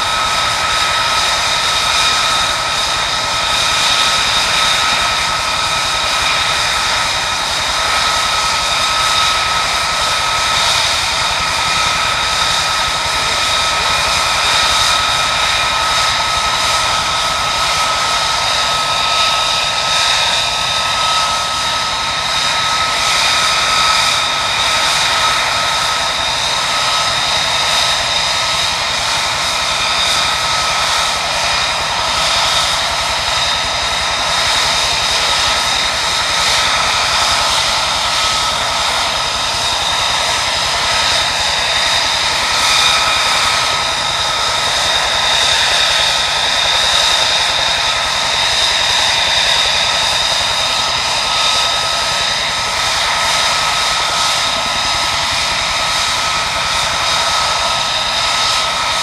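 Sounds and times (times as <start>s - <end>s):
jet engine idling: 0.0s - 59.0s.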